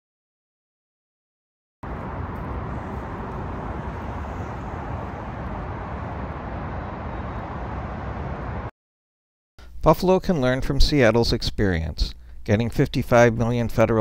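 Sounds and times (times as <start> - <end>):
freeway traffic roar: 1.8 - 8.7.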